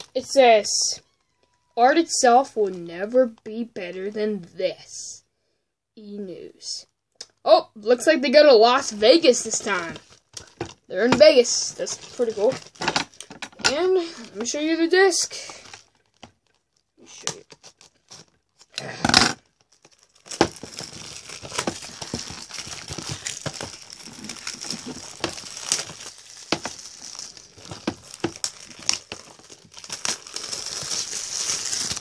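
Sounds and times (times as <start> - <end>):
plastic wrap crinkling: 8.8 - 32.0
shrink-wrap tearing: 9.4 - 14.5, 15.4 - 32.0.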